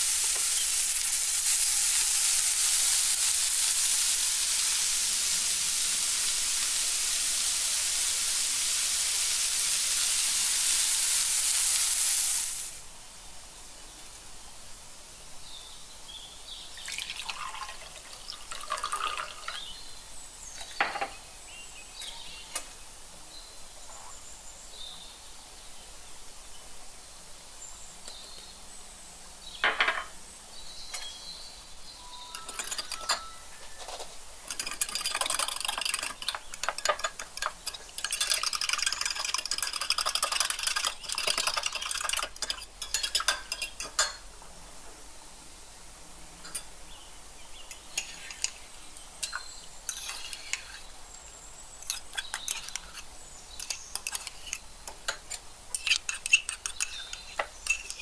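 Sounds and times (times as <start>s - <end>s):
water pouring into a mug: 16.8s - 19.6s, 34.5s - 43.6s
teaspoon clicking against a mug: 55.1s - 58.0s.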